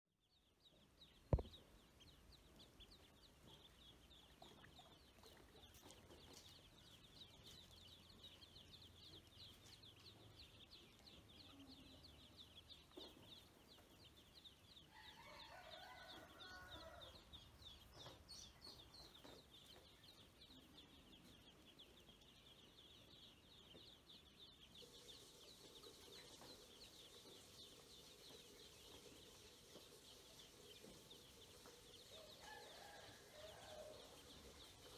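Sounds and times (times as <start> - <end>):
ducklings peeping: 0.3 - 34.9
sharp knock: 1.3 - 1.6.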